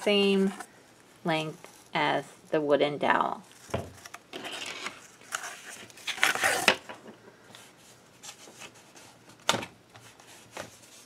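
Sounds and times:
cardboard rustling scrape: 3.5s - 6.8s.

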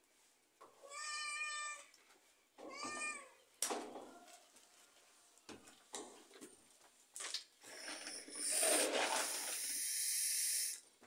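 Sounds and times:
cat meowing: 0.8s - 1.9s, 2.7s - 3.4s.

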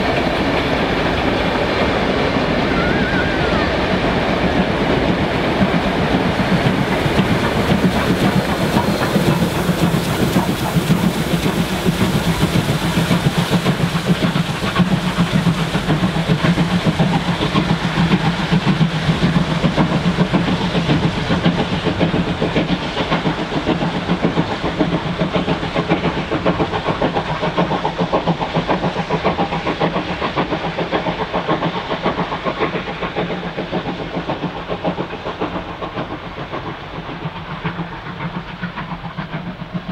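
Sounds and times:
steam hissing: 0.0s - 39.9s
steam locomotive exhaust chuffs: 0.0s - 39.9s.

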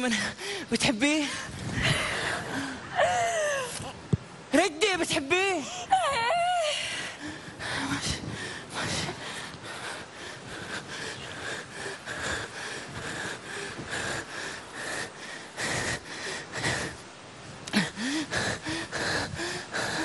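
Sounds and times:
person breathing heavily: 1.3s - 3.8s, 6.6s - 20.0s.

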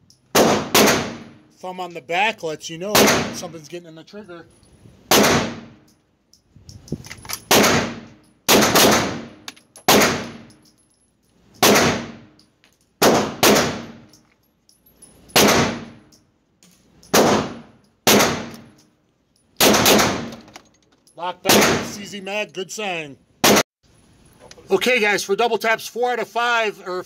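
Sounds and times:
pistol shots ringing indoors: 0.3s - 1.5s, 5.1s - 5.8s, 7.5s - 10.6s, 11.6s - 12.4s, 13.0s - 14.1s, 17.0s - 18.8s, 19.6s - 20.4s.

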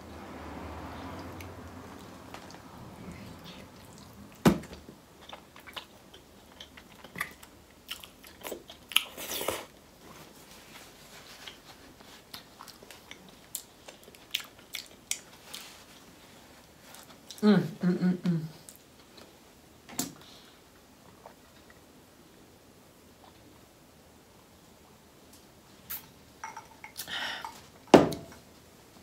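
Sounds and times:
person chewing with wet smacks: 3.3s - 9.8s, 11.3s - 17.4s.

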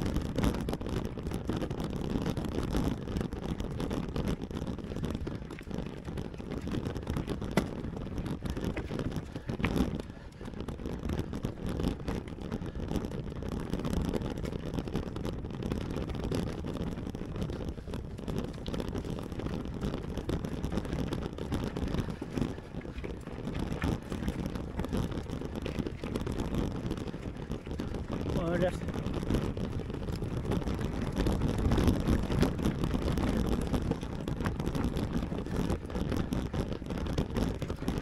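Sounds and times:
tyres rumbling on rocks: 0.0s - 38.0s
wind on microphone: 0.0s - 38.0s
bike knocking on rocks: 2.2s - 15.2s, 15.9s - 38.0s.

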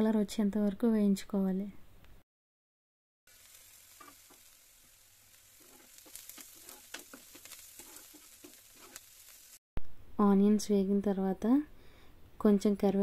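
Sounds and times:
onions sizzling in oil: 3.3s - 9.6s
steel spoon scraping pan: 5.6s - 9.2s.

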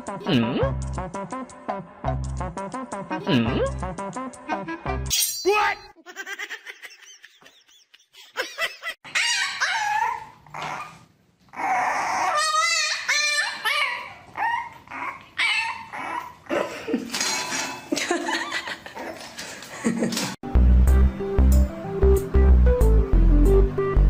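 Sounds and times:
puppy barking and whining: 9.0s - 16.5s.

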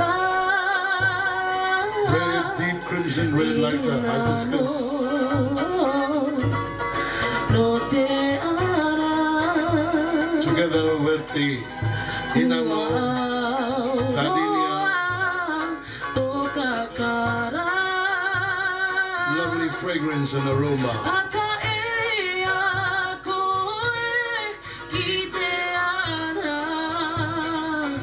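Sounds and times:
ukuleles strummed: 0.0s - 28.0s
voices singing: 0.0s - 28.0s.

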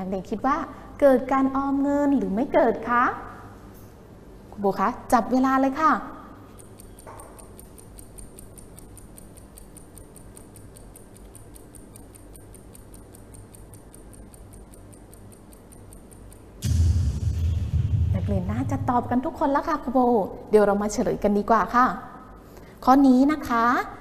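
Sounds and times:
countdown timer ticking: 6.6s - 17.1s.

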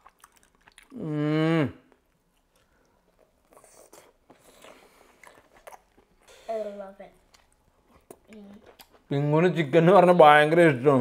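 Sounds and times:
faint chewing: 0.0s - 1.1s, 1.9s - 6.5s, 7.1s - 9.1s
person humming mmm: 0.9s - 2.0s.

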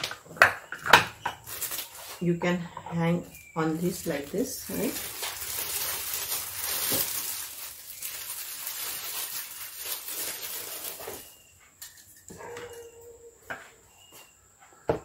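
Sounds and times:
plastic bag crinkling: 1.4s - 2.3s, 3.4s - 11.4s.

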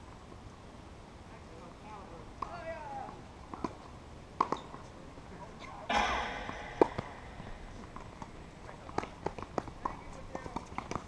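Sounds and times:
tennis ball struck by racquet: 5.9s - 8.3s.

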